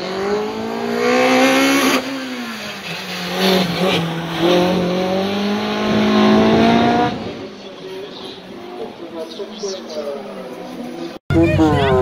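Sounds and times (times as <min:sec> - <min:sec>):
race car engine revving: 0:00.0 - 0:07.6.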